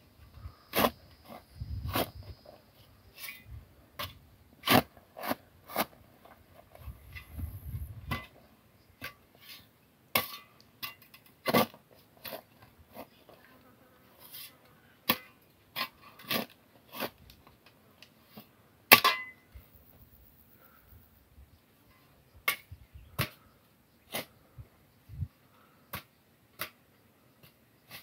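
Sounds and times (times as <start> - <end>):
spade cutting and tossing soil: 0.7 - 2.4, 3.1 - 8.4, 9.0 - 13.1, 14.2 - 17.4, 24.1 - 24.4, 27.4 - 28.0.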